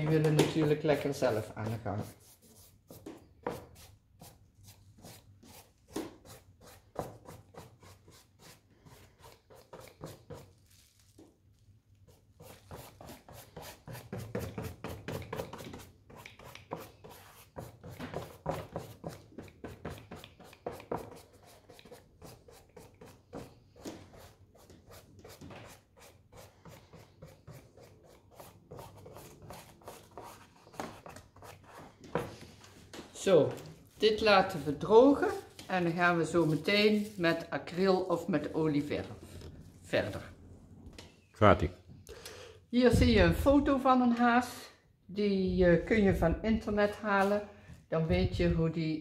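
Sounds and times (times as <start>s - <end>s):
paintbrush strokes on paper: 33.6s - 37.5s.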